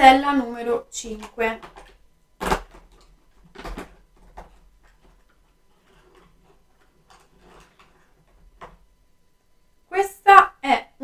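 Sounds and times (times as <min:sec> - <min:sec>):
faint clicks and rustles: 0:01.0 - 0:09.0.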